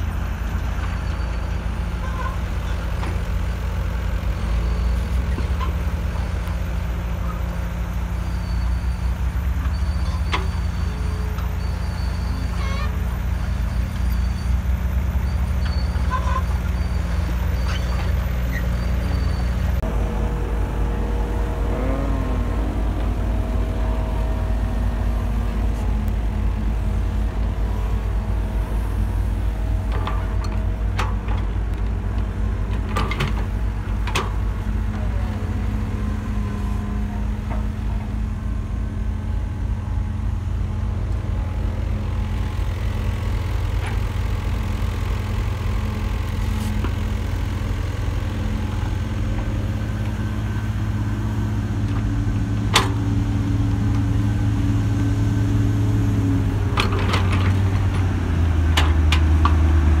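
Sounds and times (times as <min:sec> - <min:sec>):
diesel engines droning: 0:00.0 - 1:00.0
sharp clicks and knocks: 0:58.7 - 0:59.7.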